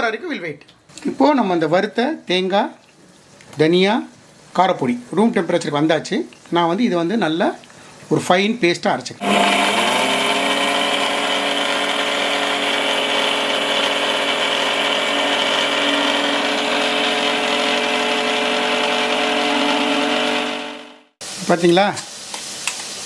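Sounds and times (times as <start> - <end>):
mixer grinder motor whining: 9.2 - 21.2.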